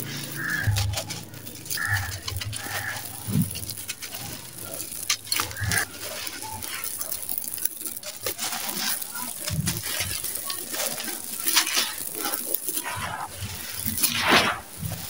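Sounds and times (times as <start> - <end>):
bird calling: 0.0 - 7.0
dry lumps crumbling in hands: 0.0 - 15.0
grit pattering down: 0.0 - 15.0.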